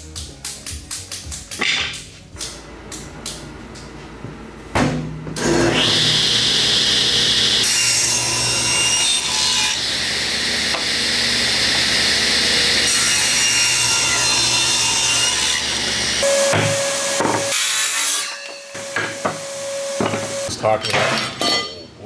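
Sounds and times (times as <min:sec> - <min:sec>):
saw motor hum: 0:05.4 - 0:18.0
table saw cutting wood: 0:05.4 - 0:20.5.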